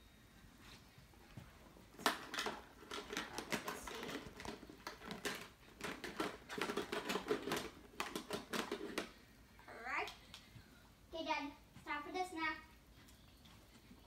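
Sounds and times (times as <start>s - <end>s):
plastic items clattering in bin: 1.9s - 9.1s.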